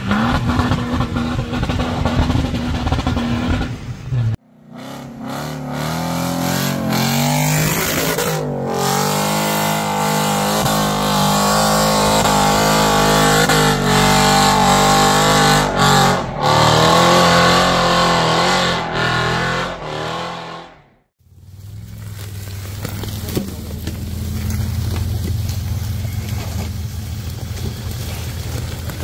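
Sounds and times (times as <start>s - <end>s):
engine revving hard: 0.0s - 3.8s, 4.6s - 21.1s.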